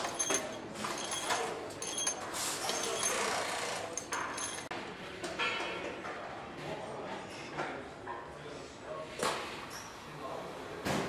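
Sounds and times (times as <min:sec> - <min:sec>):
metallic clinks of tools: 0:00.0 - 0:04.7.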